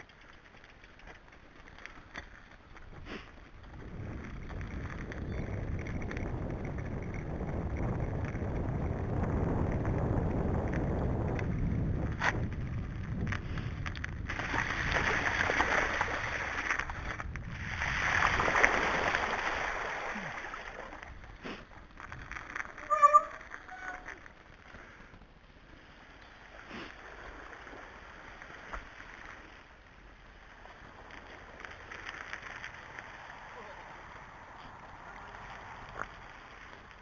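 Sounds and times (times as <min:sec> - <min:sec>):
bike tyre rumble: 0:00.0 - 0:37.0
wind buffeting microphone: 0:02.8 - 0:24.0
tyres hissing through mud: 0:26.6 - 0:28.3.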